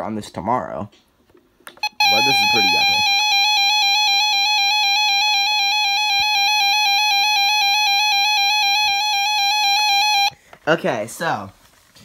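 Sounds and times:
electronic alarm tone: 1.8s - 10.3s.

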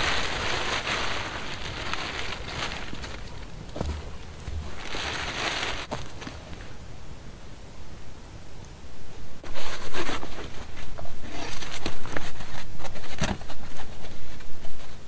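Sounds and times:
plastic tarp rustling: 0.0s - 6.8s.

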